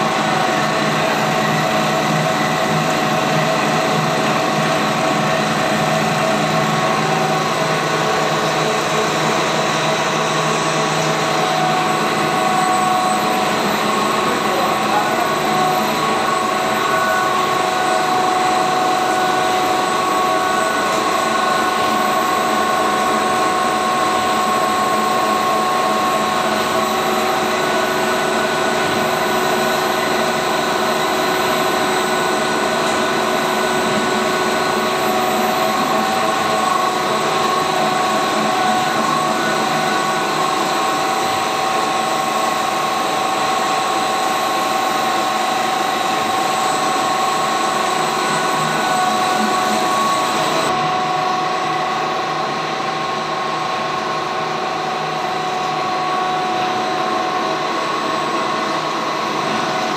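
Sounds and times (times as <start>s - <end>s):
machinery running with whine: 0.0s - 59.9s.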